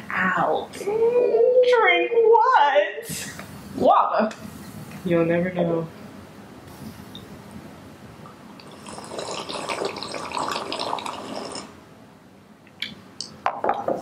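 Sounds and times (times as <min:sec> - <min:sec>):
people gulping and slurping: 0:08.6 - 0:11.8.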